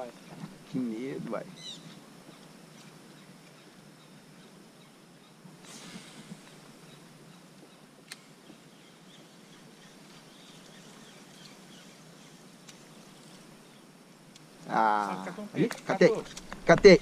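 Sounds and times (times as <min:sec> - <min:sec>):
faint bird calls: 0:01.4 - 0:13.9.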